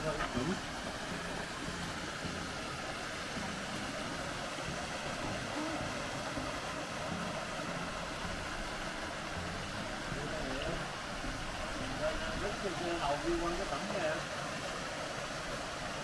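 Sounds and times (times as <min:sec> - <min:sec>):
creek water flowing: 0:00.0 - 0:16.0.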